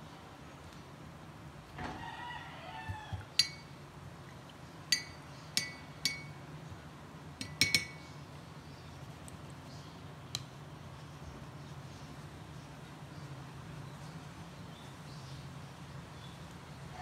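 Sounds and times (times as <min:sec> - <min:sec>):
brush handle clinking on mug: 0:03.4 - 0:03.7, 0:04.9 - 0:06.4, 0:07.4 - 0:08.0.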